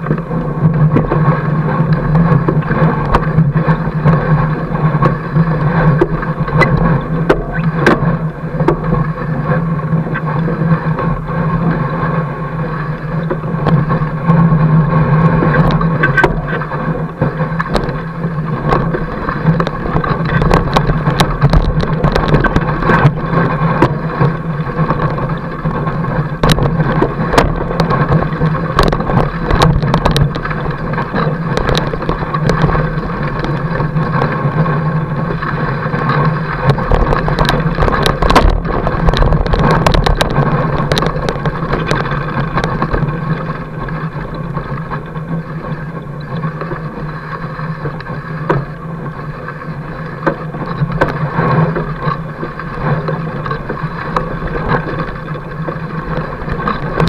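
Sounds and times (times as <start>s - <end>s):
bike tyre rolling on snow: 0.0s - 57.0s
sharp clicks and rattles: 15.3s - 45.2s.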